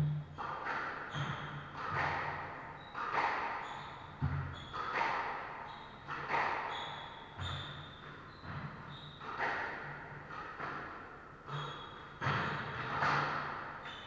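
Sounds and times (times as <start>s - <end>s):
squash ball hitting rackets and walls: 0.0s - 14.0s
shoe squeaks on wooden floor: 5.7s - 9.5s, 11.5s - 13.0s.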